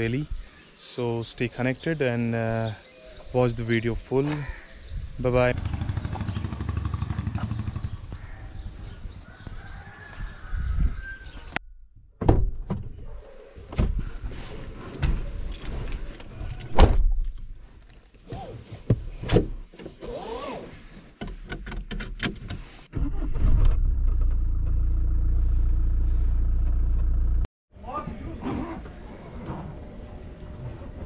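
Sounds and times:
car engine starting and idling: 22.9s - 27.5s.

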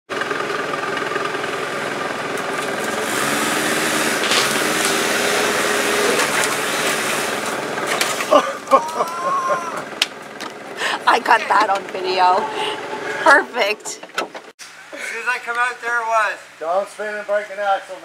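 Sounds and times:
quad bike engine running: 0.1s - 14.5s.

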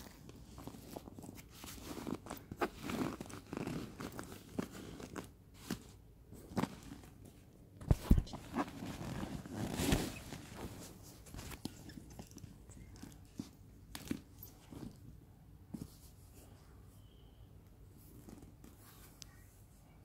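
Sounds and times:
cloth rustling against handbag: 0.0s - 7.2s, 7.9s - 16.4s.

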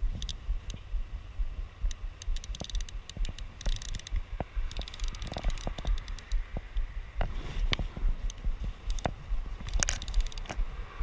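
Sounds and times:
fishing reel clicking: 0.0s - 0.8s, 1.9s - 6.5s, 8.3s - 9.1s, 9.7s - 10.6s
low microphone rumble: 0.0s - 11.0s.

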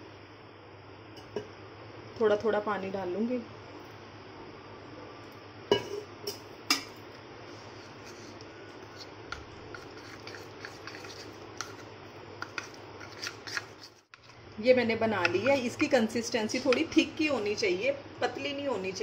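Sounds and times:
spoon scraping ceramic bowl: 7.7s - 14.1s.

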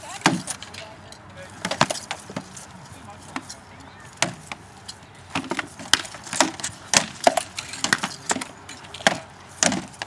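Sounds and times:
swords striking wooden shields: 0.2s - 0.6s, 1.6s - 2.5s, 4.2s - 4.6s, 5.3s - 10.0s.

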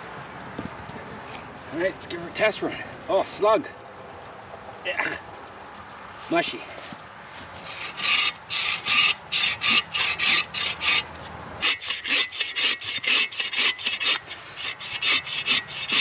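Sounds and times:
saw cutting a wet log: 7.6s - 16.0s.

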